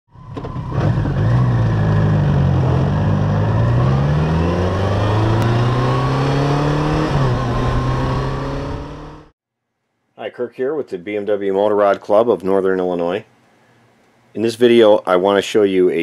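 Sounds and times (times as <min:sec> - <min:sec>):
vehicle engine accelerating: 0:00.2 - 0:09.3.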